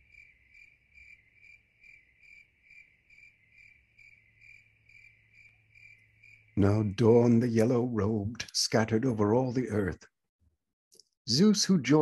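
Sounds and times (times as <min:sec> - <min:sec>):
faint cricket chirping: 0:00.0 - 0:08.0.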